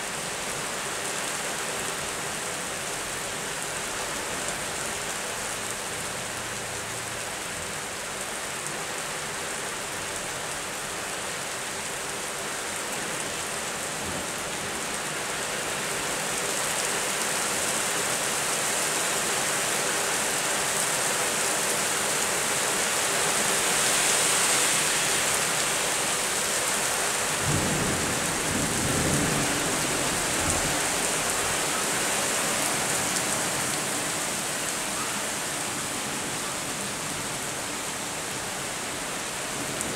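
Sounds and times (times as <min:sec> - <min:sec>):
steady rain: 0:00.0 - 0:39.9
low rumble of thunder: 0:27.4 - 0:30.9.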